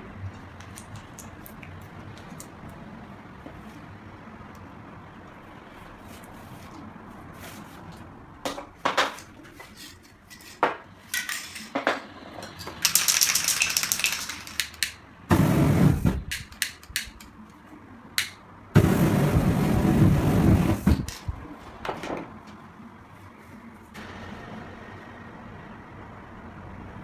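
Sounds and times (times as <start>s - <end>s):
rustling and scraping handling noise: 5.7s - 14.8s, 20.8s - 24.0s
spray can clicks and knocks: 12.8s - 15.0s, 16.2s - 17.3s
spray can hissing: 12.9s - 16.5s.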